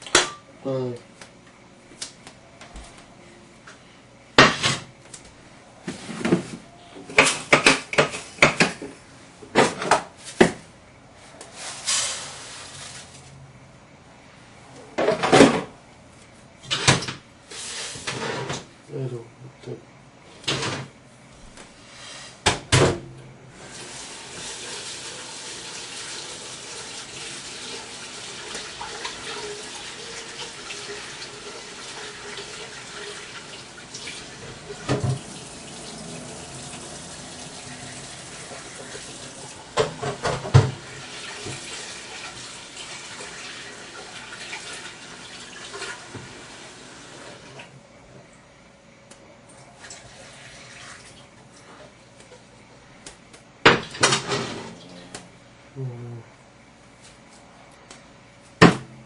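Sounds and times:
kitchen tap running into sink: 0:23.6 - 0:47.6, 0:49.8 - 0:51.3.

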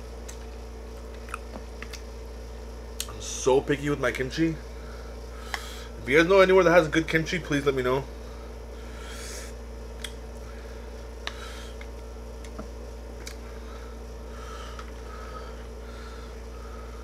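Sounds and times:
air conditioner humming: 0:00.0 - 0:17.0.

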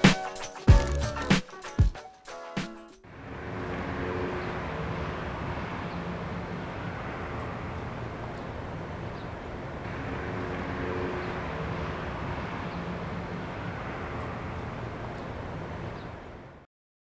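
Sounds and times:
distant traffic rumble: 0:03.1 - 0:16.7.

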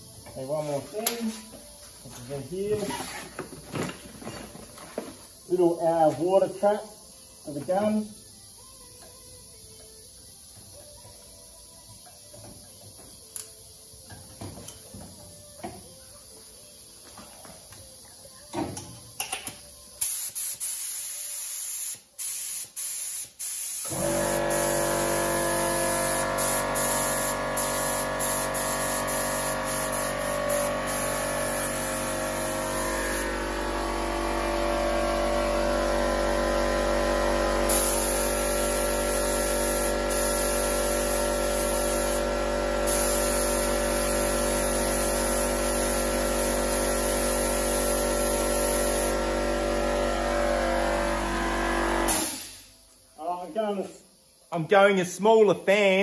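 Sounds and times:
spray gun hissing: 0:20.0 - 0:34.8, 0:37.7 - 0:49.3
air compressor humming: 0:23.4 - 0:52.8.

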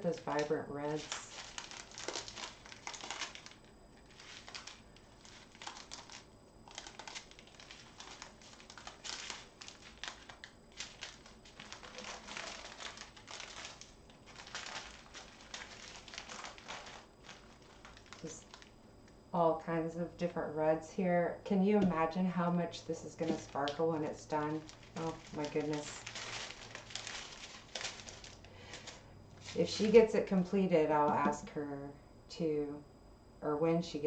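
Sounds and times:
plastic bags crinkling: 0:00.0 - 0:18.8, 0:23.0 - 0:30.1.

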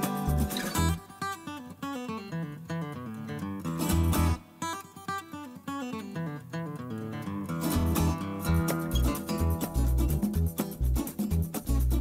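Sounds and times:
acoustic guitar plucked melody: 0:00.0 - 0:12.0.

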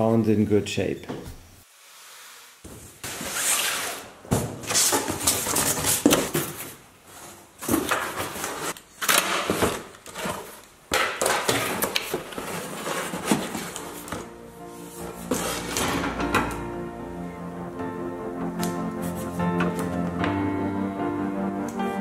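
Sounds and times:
cardboard and paper rustling: 0:02.6 - 0:16.1.

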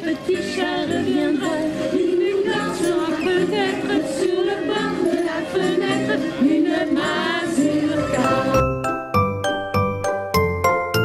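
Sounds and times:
woman singing with vibrato: 0:00.0 - 0:08.6
group of voices singing: 0:00.0 - 0:08.7.

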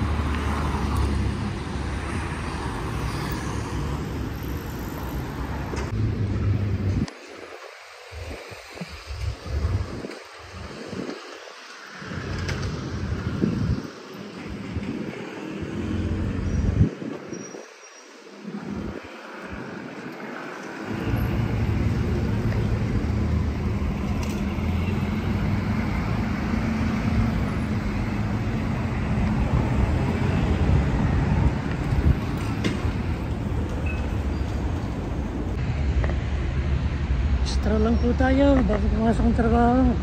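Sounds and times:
passing cars and vans: 0:00.0 - 0:40.0
wind buffeting microphone: 0:05.9 - 0:37.4.

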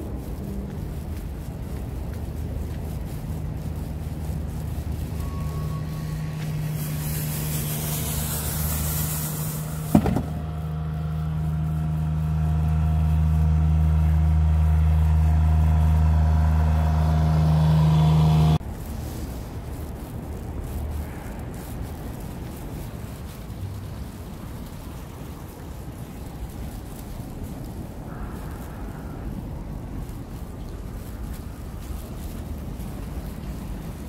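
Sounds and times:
loader engine running: 0:02.3 - 0:18.6
sharp knock: 0:09.9 - 0:10.4.

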